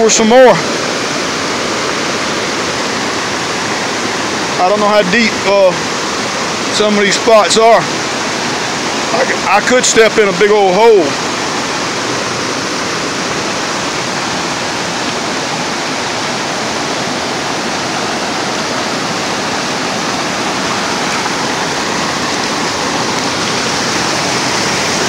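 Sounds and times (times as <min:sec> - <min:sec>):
river rushing over rocks: 0:00.0 - 0:25.0.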